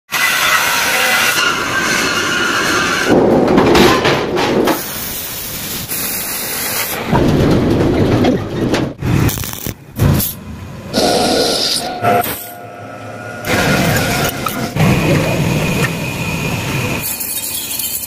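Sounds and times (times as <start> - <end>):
rumbling machinery: 0.8 - 5.0, 6.8 - 18.0.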